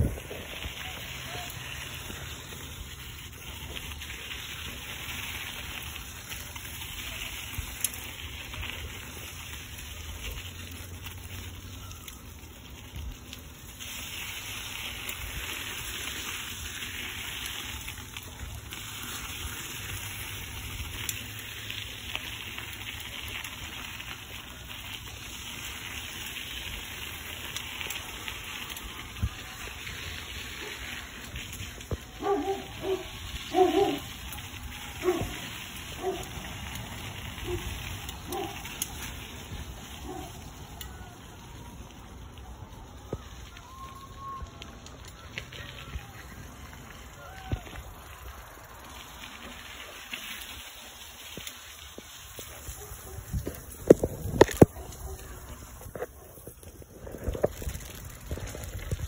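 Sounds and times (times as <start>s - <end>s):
wind on microphone: 0.0s - 0.6s
bike tyres rolling on dirt: 0.0s - 59.0s.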